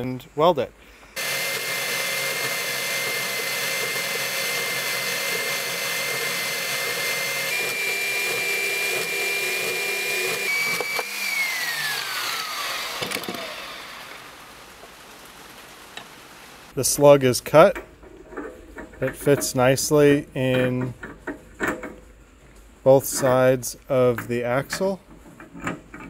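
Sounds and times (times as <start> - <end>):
band saw cutting steel tube: 1.2 - 14.7
motor winding down: 1.2 - 15.0.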